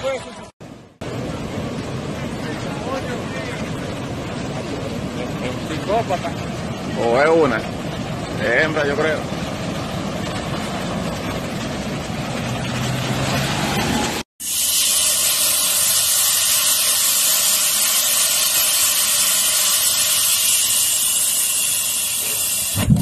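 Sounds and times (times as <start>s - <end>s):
rushing floodwater: 1.1s - 14.2s
compressed air hissing: 14.4s - 23.0s.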